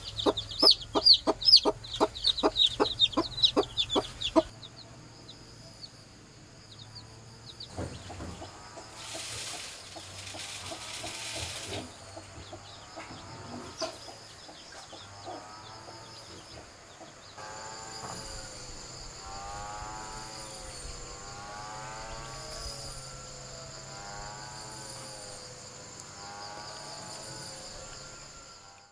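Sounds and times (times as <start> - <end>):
chickens clucking: 0.0 - 5.0, 6.9 - 19.4
insects buzzing: 0.0 - 28.9
hissing noise: 7.8 - 12.3.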